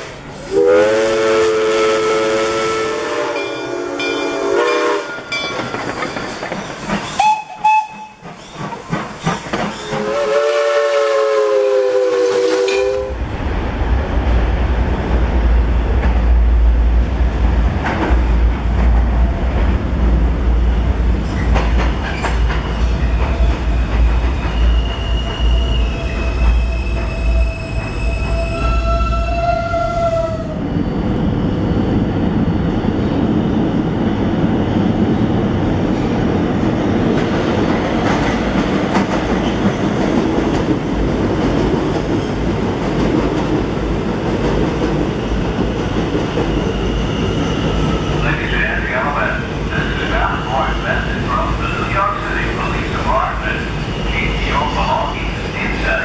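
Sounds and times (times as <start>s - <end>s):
subway train rumbling: 0.0s - 56.0s
steam locomotive whistle blasts: 0.4s - 5.3s, 7.2s - 8.2s, 9.8s - 13.2s, 24.6s - 30.6s.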